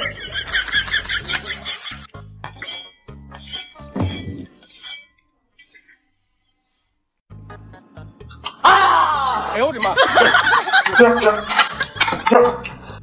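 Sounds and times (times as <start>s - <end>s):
light background music: 0.0s - 5.9s, 7.3s - 13.0s
fork scraping against plate: 2.5s - 6.1s.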